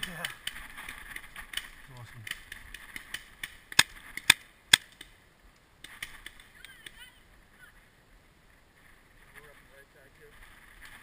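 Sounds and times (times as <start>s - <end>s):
paintball marker shots: 5.8s - 7.0s.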